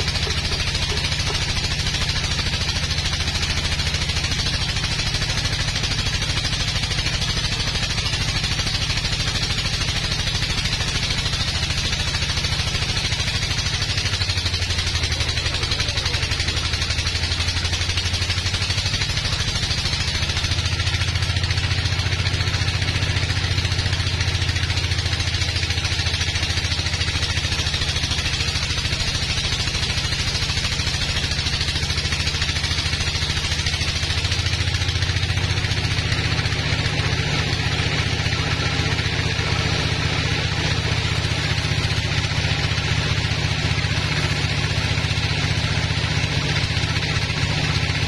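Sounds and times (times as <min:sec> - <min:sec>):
sawmill machine drone: 0:00.0 - 0:48.0.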